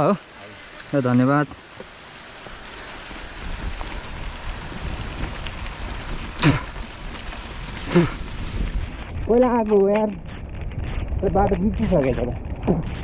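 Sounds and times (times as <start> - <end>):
bike tyres rumbling on wet road: 0.0 - 13.0
wind on microphone: 2.9 - 13.0.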